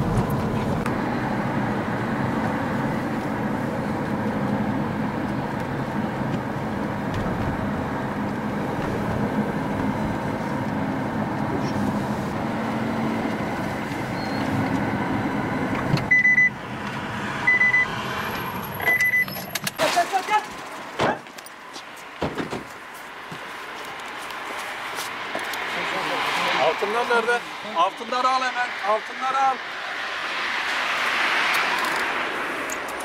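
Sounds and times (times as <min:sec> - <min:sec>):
car road and engine noise: 0:00.0 - 0:33.0
high electronic beeps: 0:16.1 - 0:16.6, 0:17.4 - 0:17.9, 0:18.8 - 0:19.5.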